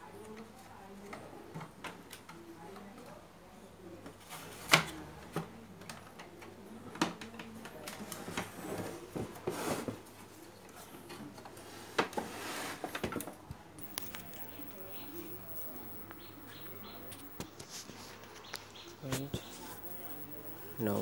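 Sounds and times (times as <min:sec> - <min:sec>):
clicks and rattles of handled circuit board: 0:13.8 - 0:21.0.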